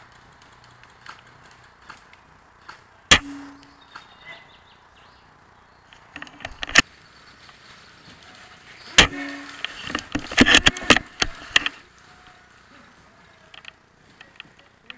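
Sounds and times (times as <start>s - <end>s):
airsoft rifle shot: 3.1s - 3.7s.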